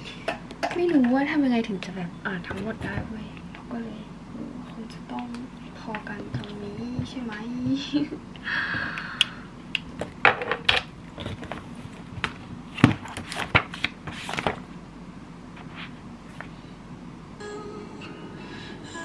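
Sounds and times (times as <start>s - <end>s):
plastic and paper rustling: 11.2s - 14.6s.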